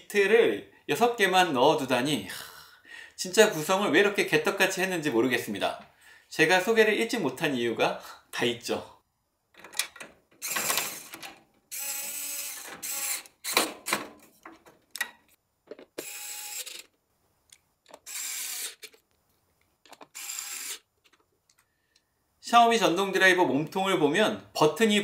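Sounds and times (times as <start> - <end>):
electric screwdriver motor whirring: 10.4 - 11.1, 11.7 - 13.7, 16.0 - 16.9, 18.0 - 19.0, 20.1 - 20.9.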